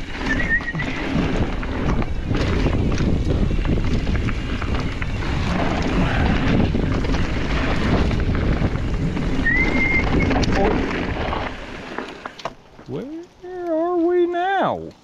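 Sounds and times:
wind buffeting microphone: 0.0s - 11.9s
bike tyres rumbling on dirt: 0.0s - 13.0s
high squeal: 0.1s - 1.1s, 9.4s - 10.5s.

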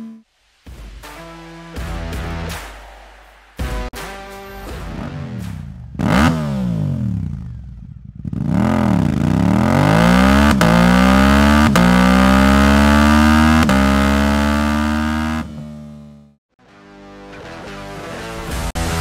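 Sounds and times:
motorcycle engine revving: 4.8s - 16.4s.

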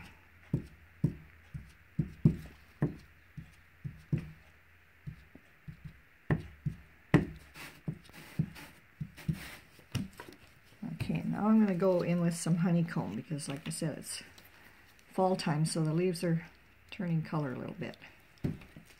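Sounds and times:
stamper tapping on paper: 0.5s - 4.4s, 5.1s - 10.4s.

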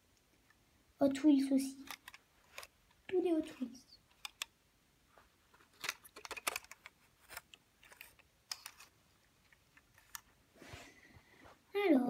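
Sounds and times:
toy car clicks and taps: 4.1s - 4.5s, 5.8s - 8.8s.

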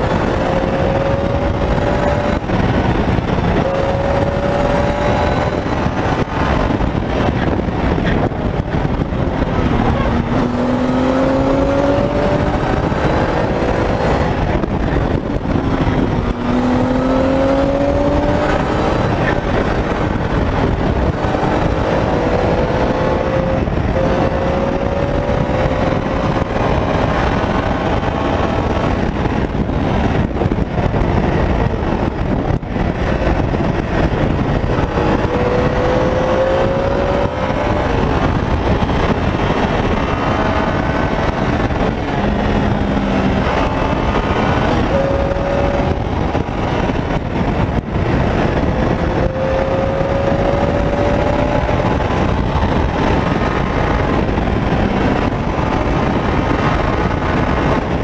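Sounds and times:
motorcycle engine accelerating: 0.0s - 58.0s
wind rushing over microphone: 0.0s - 58.0s.

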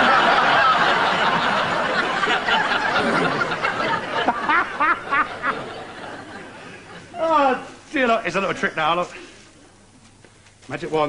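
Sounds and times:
studio audience laughing: 0.0s - 7.1s
man laughing: 2.7s - 5.7s.

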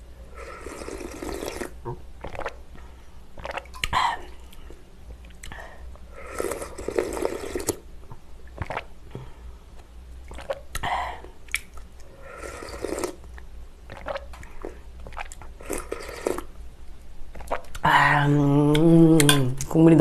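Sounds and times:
slurping broth: 0.3s - 2.6s, 3.4s - 3.7s, 6.1s - 7.8s, 12.1s - 16.5s
swallowing: 12.3s - 16.5s.

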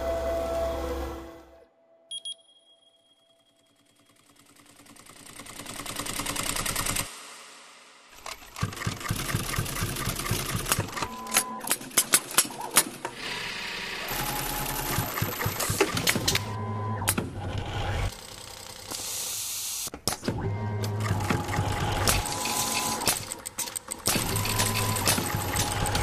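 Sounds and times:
sewing machine stitching: 3.7s - 7.1s, 8.2s - 13.4s, 14.1s - 18.9s, 20.3s - 26.0s.

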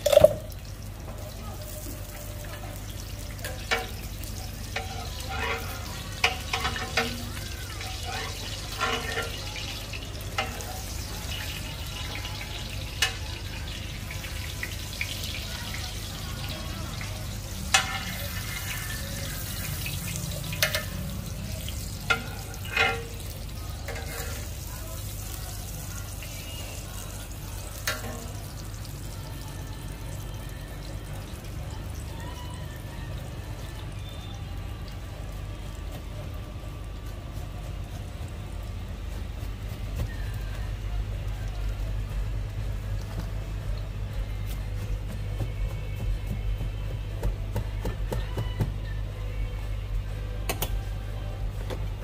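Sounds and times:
cooking utensils clinking: 2.5s - 14.4s, 17.6s - 25.1s.

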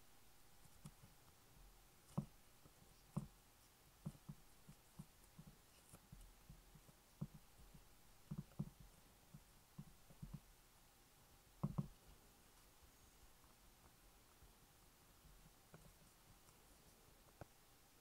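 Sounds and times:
fingers tapping pastry in glass dish: 11.6s - 12.0s.

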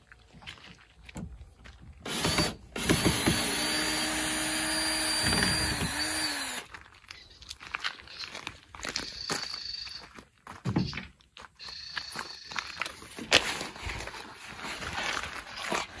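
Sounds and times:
cordless drill whine: 2.1s - 6.7s.

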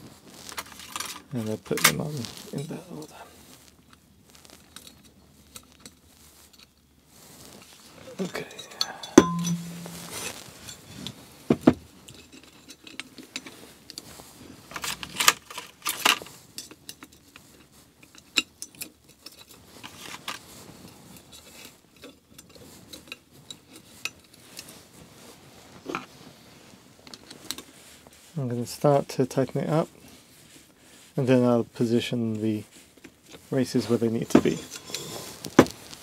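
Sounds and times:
small metal clinks: 8.2s - 11.2s.

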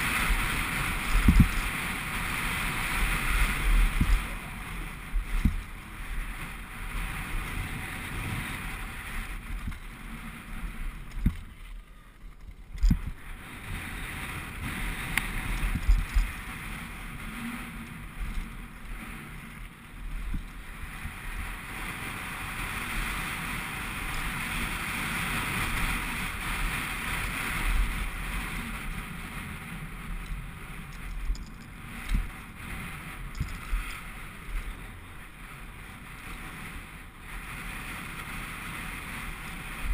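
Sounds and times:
bike tyres rumbling on gravel: 0.0s - 39.9s
wind rushing over microphone: 0.0s - 39.9s
bike knocking on rocks: 1.0s - 1.8s, 5.2s - 5.7s, 11.0s - 13.2s.

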